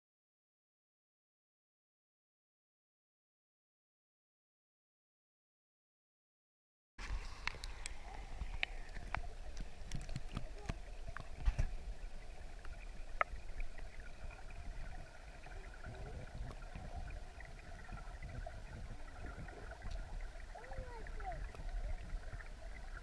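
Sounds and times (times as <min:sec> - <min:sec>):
underwater river rush: 0:07.0 - 0:23.0.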